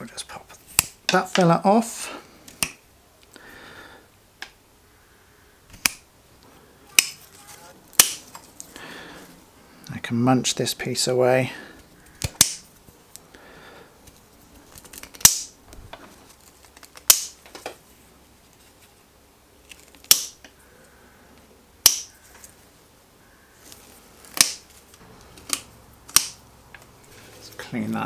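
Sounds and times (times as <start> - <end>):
cutters snapping wood: 5.7 - 6.0, 7.0 - 7.2, 7.9 - 8.4, 12.1 - 12.7, 14.8 - 15.6, 16.8 - 17.5, 19.7 - 20.6, 21.8 - 22.4, 24.3 - 26.9.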